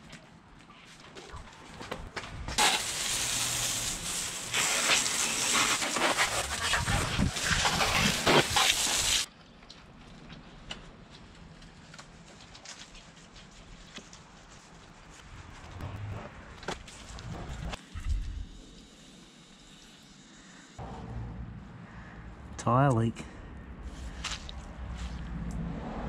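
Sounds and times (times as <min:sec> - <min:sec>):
spraying hiss: 0:02.6 - 0:06.0, 0:07.3 - 0:09.3.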